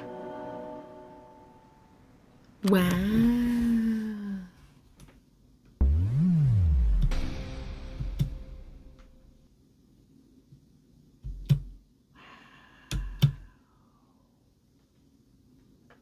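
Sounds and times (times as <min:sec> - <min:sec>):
electronic song outro: 0:05.8 - 0:09.4.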